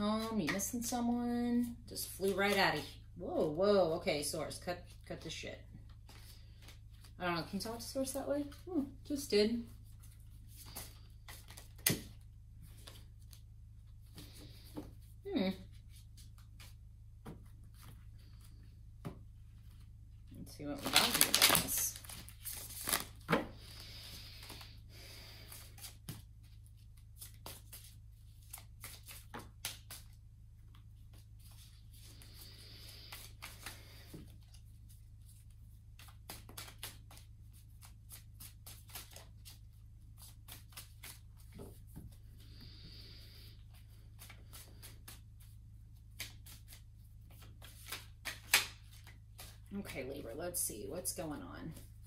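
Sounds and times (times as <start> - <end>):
cards clicking and slapping: 10.6 - 12.2, 27.2 - 30.2, 36.0 - 37.2, 46.1 - 49.6.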